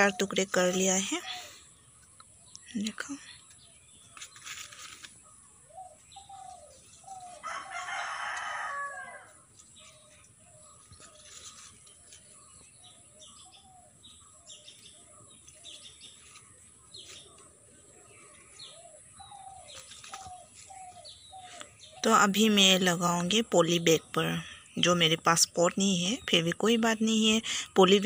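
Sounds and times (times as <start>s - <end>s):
rooster crowing: 7.3s - 9.4s
bird chirps: 9.6s - 27.7s.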